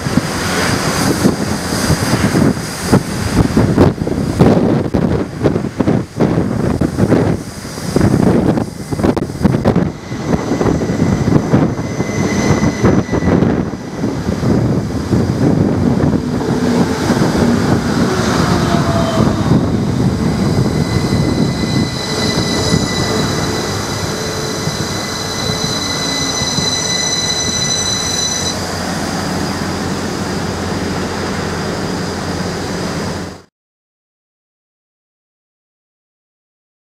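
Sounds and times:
steady train hum: 0:00.0 - 0:33.5
train rumbling past: 0:00.0 - 0:33.5
high-pitched whine: 0:07.4 - 0:33.4.

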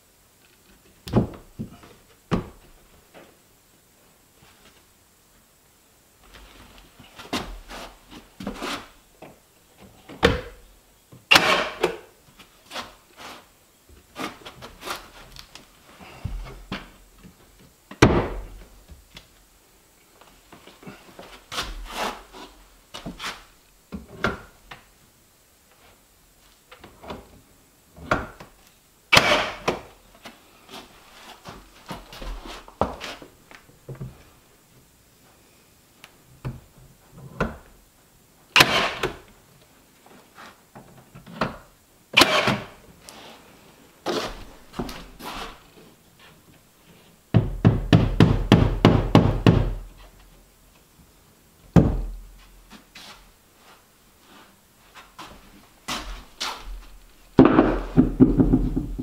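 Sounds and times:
nail gun firing: 0:11.3 - 0:11.8, 0:29.1 - 0:29.7, 0:38.6 - 0:39.1, 0:42.2 - 0:42.7
boards knocking: 0:47.3 - 0:49.8, 0:57.4 - 0:59.0.

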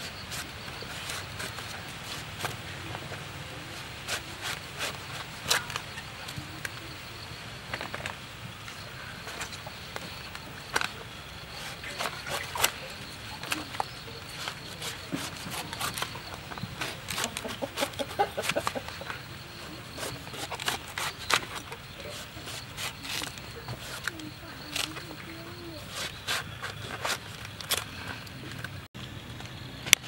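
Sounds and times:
knife cutting fruit rind: 0:03.8 - 0:06.1, 0:11.6 - 0:27.9.

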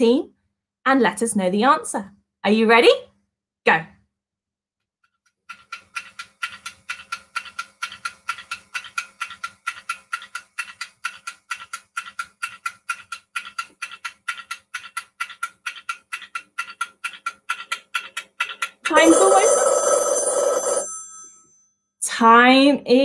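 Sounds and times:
clock ticking briskly: 0:05.4 - 0:19.6.

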